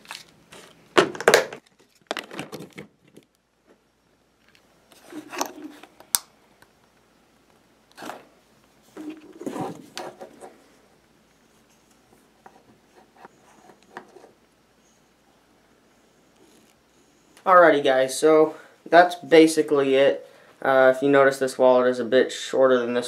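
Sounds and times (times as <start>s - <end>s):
handling rubbing and knocks: 8.0s - 10.7s, 11.5s - 14.4s.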